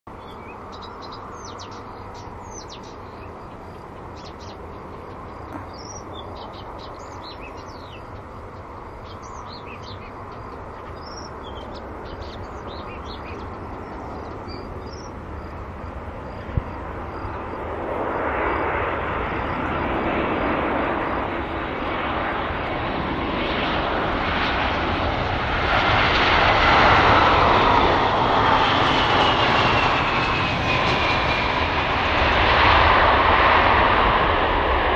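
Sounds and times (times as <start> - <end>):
jet engines rumbling: 0.1 - 34.9
small birds chirping: 0.2 - 18.4.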